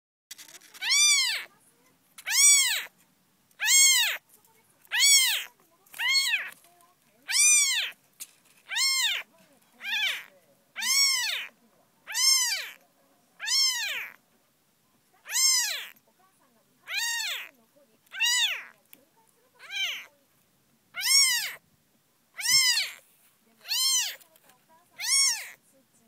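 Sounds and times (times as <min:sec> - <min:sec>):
kitten meowing: 0:00.3 - 0:01.5, 0:02.2 - 0:02.9, 0:03.6 - 0:04.2, 0:04.8 - 0:06.6, 0:07.2 - 0:08.0, 0:08.6 - 0:12.8, 0:13.4 - 0:14.2, 0:15.2 - 0:16.0, 0:16.9 - 0:18.8, 0:19.6 - 0:20.1, 0:20.9 - 0:21.6, 0:22.4 - 0:23.0, 0:23.6 - 0:24.2, 0:25.0 - 0:25.6.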